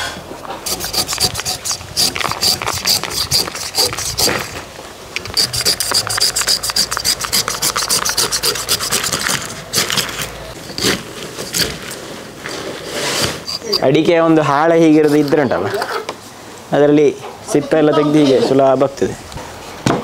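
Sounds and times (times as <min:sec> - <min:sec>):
knife scraping fruit rind: 0:00.6 - 0:04.6, 0:05.2 - 0:16.1.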